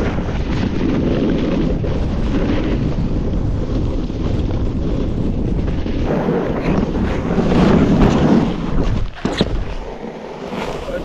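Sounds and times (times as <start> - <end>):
snowboard scraping over snow: 0.0 - 11.0
wind buffeting microphone: 0.0 - 11.0.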